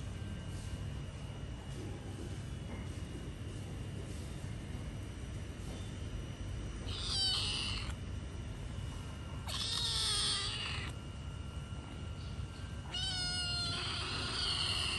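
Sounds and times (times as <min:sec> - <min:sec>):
cat meowing: 0:06.8 - 0:08.0, 0:09.4 - 0:11.0, 0:12.8 - 0:14.9.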